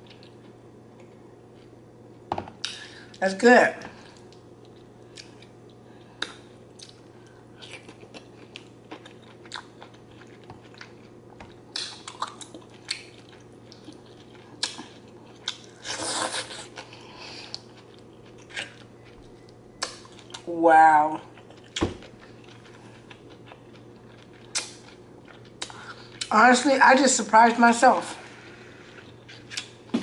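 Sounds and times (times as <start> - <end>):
wet chewing: 7.6 - 20.5, 21.3 - 26.3.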